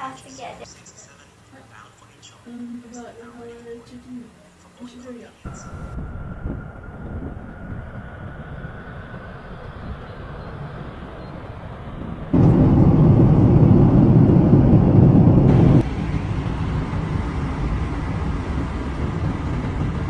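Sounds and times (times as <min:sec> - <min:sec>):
faint high whine: 0:00.0 - 0:19.1
jet airliner roar: 0:05.5 - 0:20.0.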